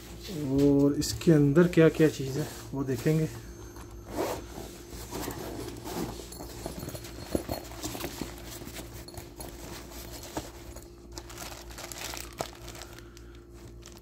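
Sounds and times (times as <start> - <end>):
handling tool case knocks and clicks: 5.1 - 10.8.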